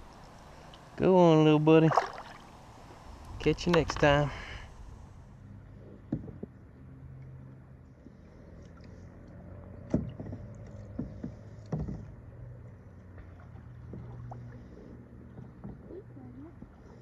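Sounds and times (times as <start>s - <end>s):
kayak paddle strokes: 0.0s - 5.0s
low steady hum: 0.0s - 17.0s.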